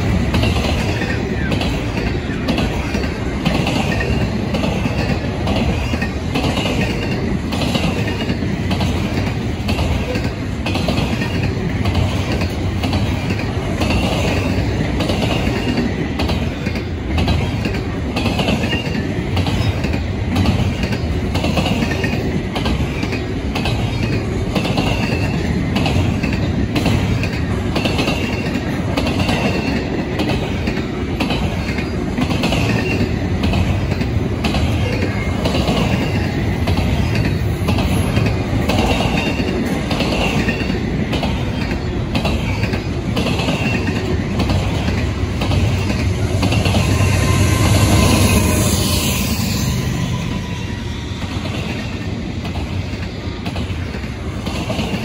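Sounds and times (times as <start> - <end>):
freight train wheel rumble: 0.0 - 55.0
wheels clacking over rail joints: 0.0 - 55.0
high-pitched wheel squeals: 46.5 - 51.6.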